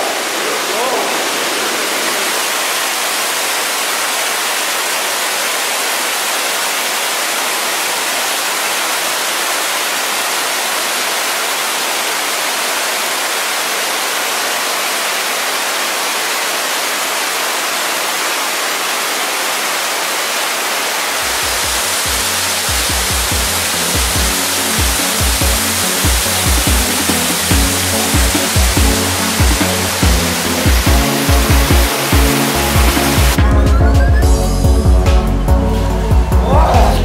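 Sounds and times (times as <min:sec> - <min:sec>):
waterfall rushing: 0:00.0 - 0:37.0.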